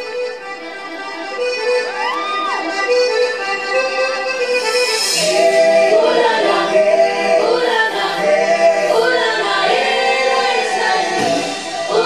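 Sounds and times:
choir singing with music: 0:04.6 - 0:12.0.

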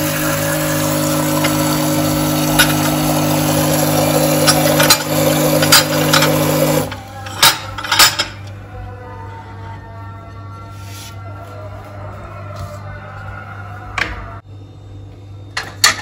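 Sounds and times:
faint music: 0:06.8 - 0:15.4.

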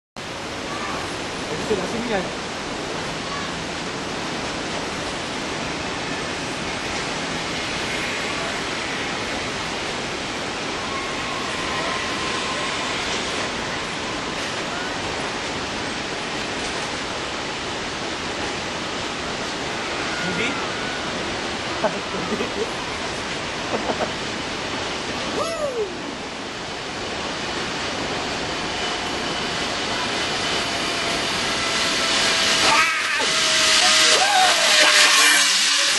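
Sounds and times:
waterfall roaring: 0:00.2 - 0:35.9
zipline trolley whirring on cable: 0:06.7 - 0:15.3, 0:26.8 - 0:35.9.

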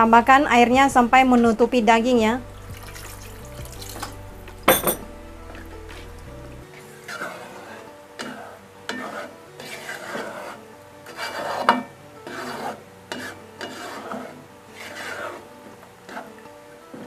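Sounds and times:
utensil scraping in cooking pot: 0:06.7 - 0:17.0.

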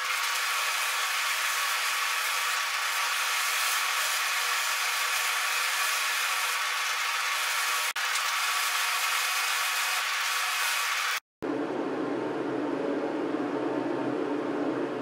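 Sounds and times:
drill press sanding wood: 0:00.0 - 0:11.2.

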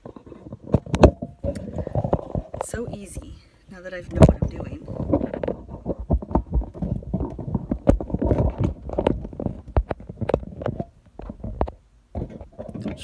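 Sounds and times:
phone microphone handling noise: 0:00.0 - 0:13.0.

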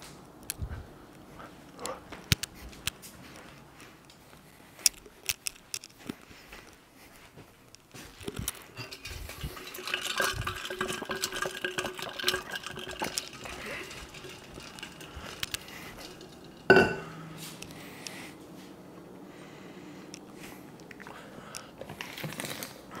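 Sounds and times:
dishes and utensils clinking: 0:08.4 - 0:17.2.

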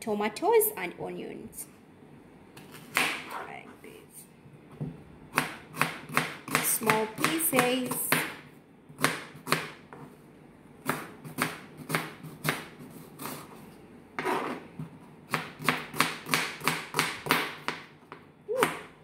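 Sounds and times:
knife chopping on plastic board: 0:02.6 - 0:03.3, 0:04.8 - 0:08.4, 0:09.0 - 0:10.1, 0:10.8 - 0:13.4, 0:15.3 - 0:18.9.

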